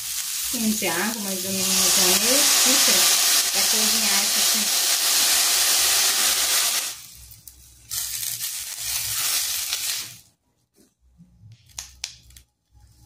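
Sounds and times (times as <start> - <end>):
vegetables being stirred: 0.0 - 6.9, 7.9 - 10.2
water sizzling in a hot pan: 0.0 - 7.3, 7.9 - 10.2.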